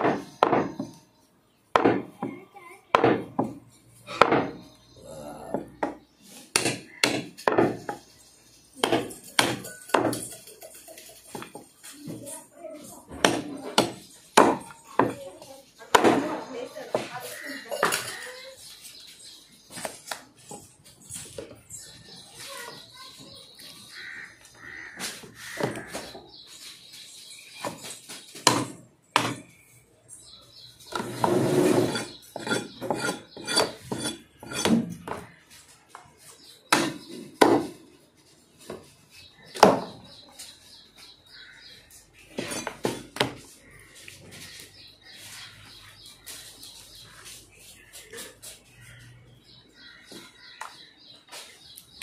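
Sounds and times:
cleaver chopping meat and bone: 0.0s - 0.9s, 1.7s - 2.2s, 2.9s - 3.5s, 4.2s - 4.6s, 5.5s - 7.8s, 8.8s - 10.2s, 13.1s - 15.2s, 15.9s - 17.1s, 28.4s - 29.5s, 32.0s - 35.2s, 36.7s - 37.8s.

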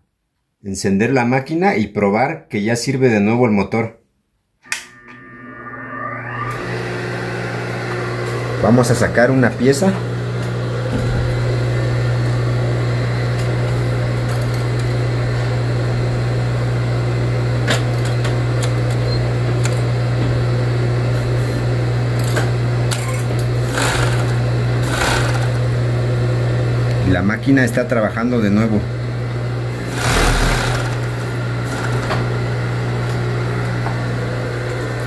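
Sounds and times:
sewing machine motor humming: 23.3s - 25.8s, 29.7s - 32.4s.

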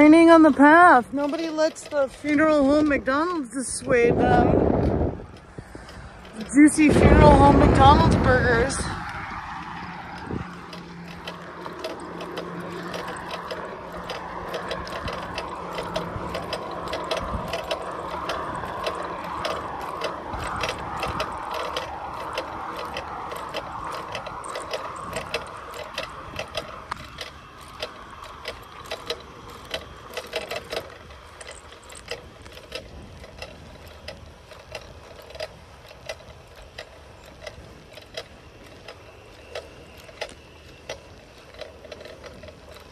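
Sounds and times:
bicycle freewheel hub ticking: 0.0s - 42.9s
steady rush: 3.7s - 29.8s.

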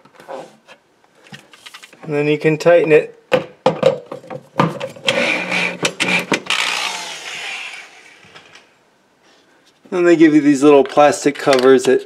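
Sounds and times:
drill motor whirring: 5.1s - 8.5s.

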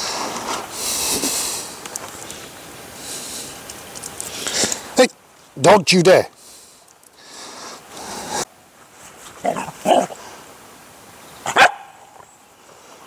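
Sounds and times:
rustle of movement: 0.0s - 5.7s, 6.3s - 13.0s
puppy barking: 9.5s - 10.1s, 11.5s - 12.2s.

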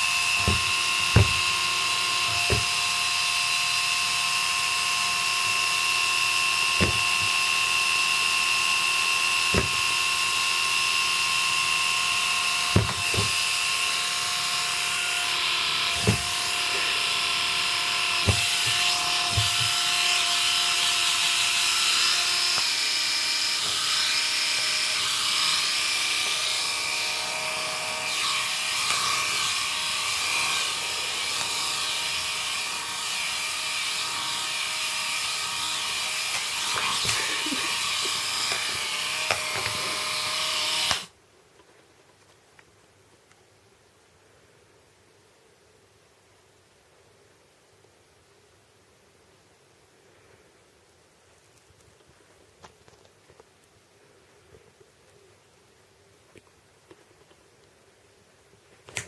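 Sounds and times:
electric shaver whining: 0.0s - 41.1s.

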